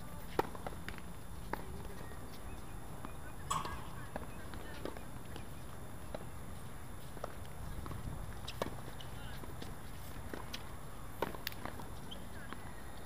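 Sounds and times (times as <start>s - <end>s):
tennis balls struck and bouncing: 3.5s - 5.0s.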